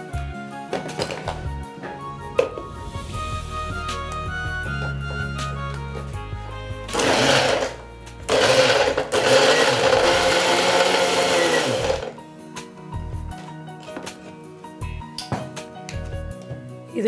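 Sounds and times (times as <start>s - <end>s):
electric blender running: 6.9s - 12.2s.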